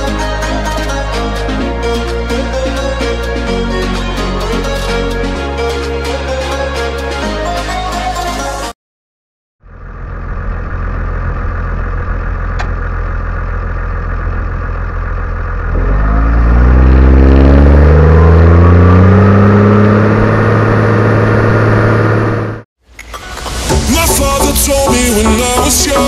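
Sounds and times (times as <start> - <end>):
tractor diesel engine revving: 9.7 - 22.6.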